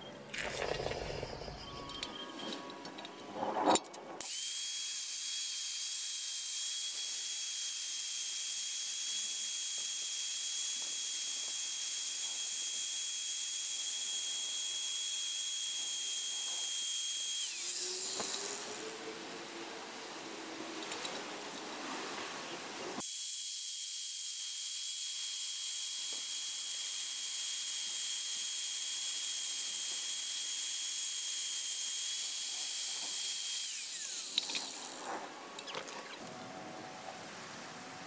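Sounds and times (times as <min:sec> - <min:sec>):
angle grinder grinding steel: 0:01.4 - 0:19.6, 0:23.8 - 0:35.3.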